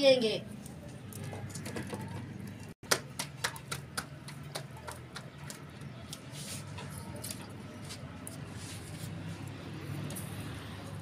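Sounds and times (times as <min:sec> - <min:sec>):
hands slapping dough: 0:02.8 - 0:06.3.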